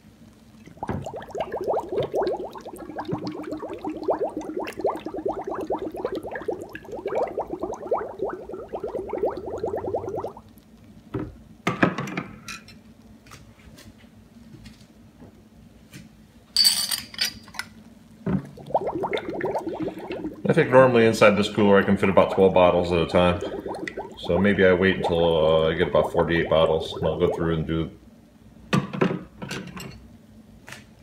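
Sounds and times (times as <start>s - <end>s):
bottle gurgling under water: 0.5s - 10.6s, 18.3s - 27.7s
knife clinking on glass: 16.6s - 17.5s.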